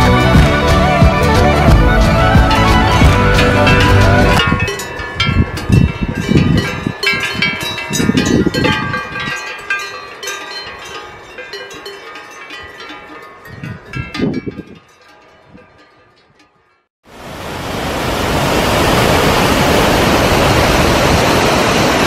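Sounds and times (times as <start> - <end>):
cowbells clanking: 3.6 - 16.9.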